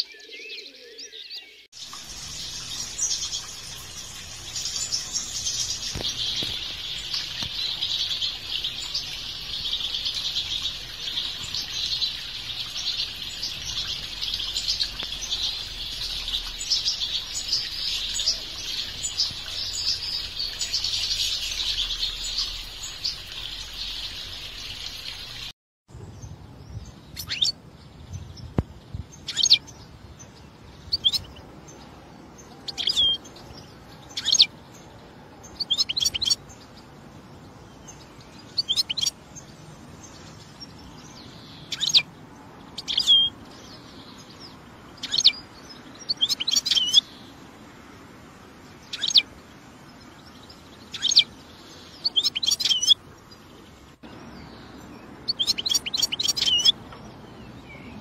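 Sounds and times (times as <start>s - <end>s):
finch calls: 46.0s - 47.0s, 48.9s - 49.2s, 50.9s - 51.3s, 52.0s - 53.0s, 55.3s - 56.8s
goldfinches twittering: 48.8s - 49.3s, 54.1s - 58.0s.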